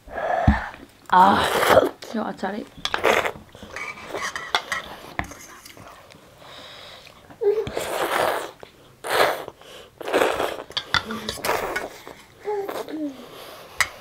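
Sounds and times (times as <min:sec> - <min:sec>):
noodles being slurped: 0:01.1 - 0:02.0, 0:02.9 - 0:06.1, 0:07.7 - 0:13.2.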